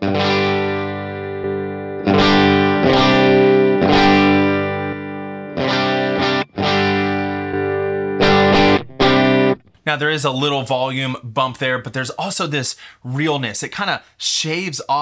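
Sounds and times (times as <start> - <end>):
electric guitar chords ringing: 0.0 - 9.7.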